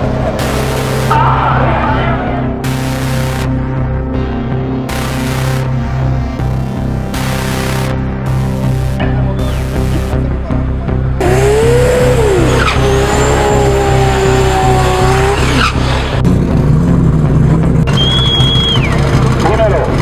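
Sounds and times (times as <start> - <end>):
car engine revving hard: 11.2 - 19.4.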